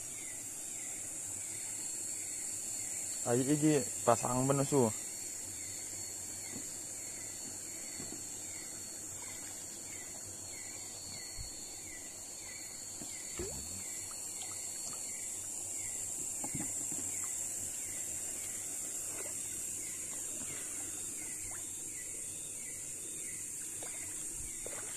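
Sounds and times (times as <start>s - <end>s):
insect chorus hiss: 0.0s - 24.9s
river water trickling: 0.0s - 24.9s
small water splashes: 13.3s - 15.6s, 16.4s - 21.8s, 23.7s - 24.9s.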